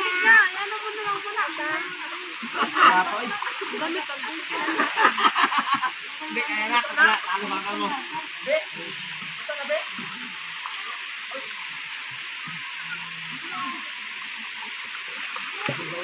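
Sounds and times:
waterfall pouring into pool: 0:00.0 - 0:16.0.

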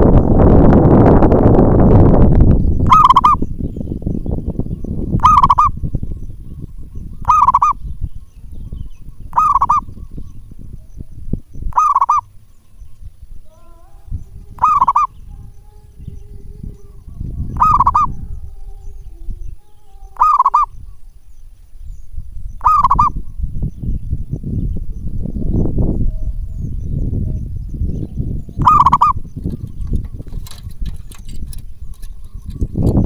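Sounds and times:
dove cooing: 0:02.9 - 0:03.4, 0:05.2 - 0:07.9, 0:09.1 - 0:11.1, 0:11.7 - 0:21.1, 0:22.6 - 0:23.3, 0:25.4 - 0:33.0
loud low rumble: 0:07.8 - 0:29.7.

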